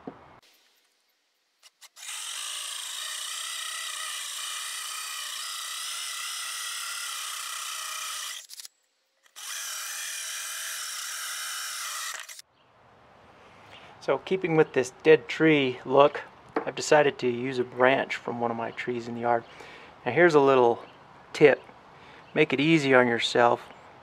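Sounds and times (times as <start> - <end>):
power drill cutting wood: 1.6 - 12.4.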